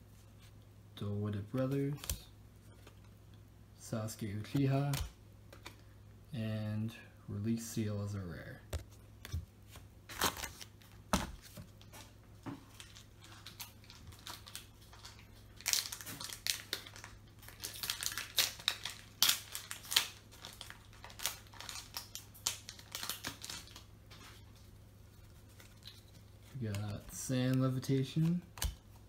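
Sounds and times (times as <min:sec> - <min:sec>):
foil wrapper crinkling: 0:12.7 - 0:24.6.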